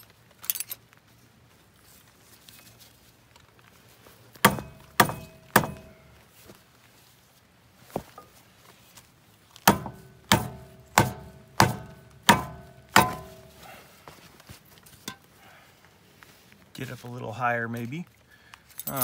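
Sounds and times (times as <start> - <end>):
metal tool striking steel: 4.5 - 6.1, 9.7 - 13.6.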